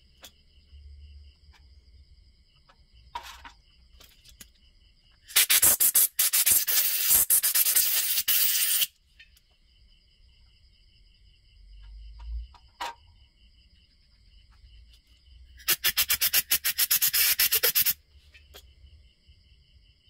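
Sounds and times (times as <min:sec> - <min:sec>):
compressed air hissing from blow gun: 0:05.3 - 0:08.9, 0:15.6 - 0:18.0.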